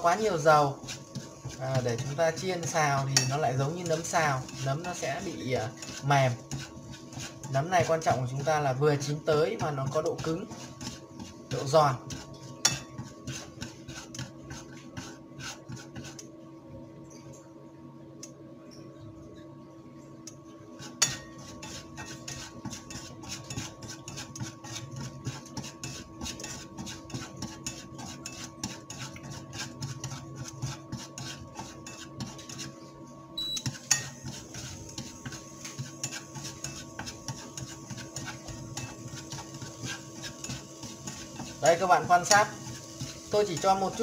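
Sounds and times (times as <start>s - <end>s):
faint steady hum: 0.0s - 26.6s.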